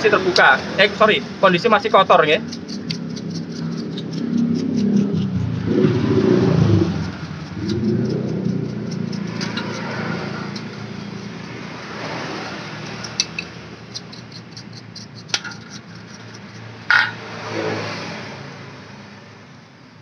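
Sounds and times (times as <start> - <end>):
low engine or traffic hum: 0.0 - 20.0
paintbrush scratching metal: 1.6 - 5.7, 6.6 - 17.2.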